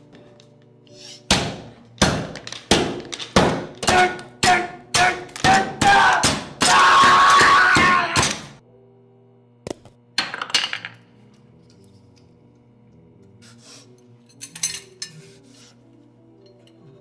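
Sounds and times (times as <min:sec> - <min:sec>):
hard objects clattering and clinking: 0:02.3 - 0:03.9.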